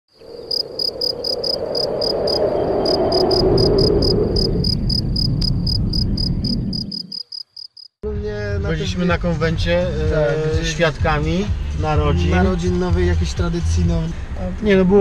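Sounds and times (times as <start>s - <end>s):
crickets chirping: 0.1s - 8.0s
steady rushing noise: 0.7s - 7.0s.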